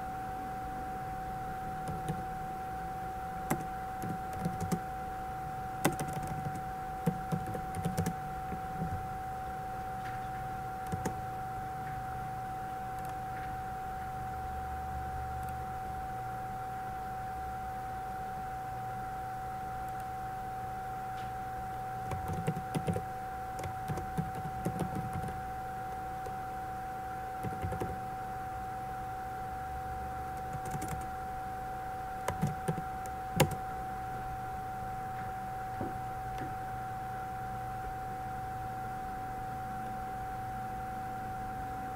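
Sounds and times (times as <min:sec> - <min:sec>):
steady whine: 0:00.0 - 0:41.9
keyboard typing: 0:01.8 - 0:02.3, 0:03.4 - 0:04.8, 0:05.8 - 0:09.0, 0:10.8 - 0:11.2, 0:12.9 - 0:13.2, 0:22.1 - 0:25.4, 0:27.4 - 0:28.0, 0:30.4 - 0:31.1, 0:32.2 - 0:33.6.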